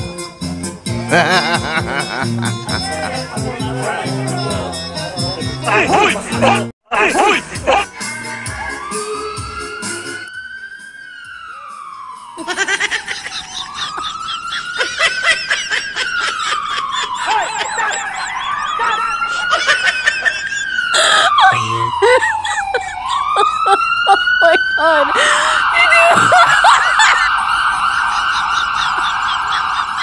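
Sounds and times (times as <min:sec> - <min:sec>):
people laughing: 0:01.0 - 0:07.9, 0:12.4 - 0:30.0
siren wailing: 0:08.1 - 0:30.0.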